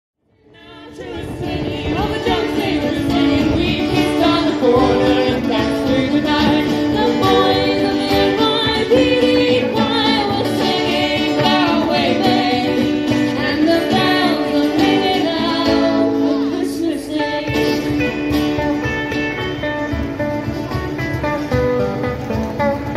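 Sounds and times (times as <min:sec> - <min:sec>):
live band through speakers: 0:00.5 - 0:22.9
person singing: 0:00.6 - 0:18.0.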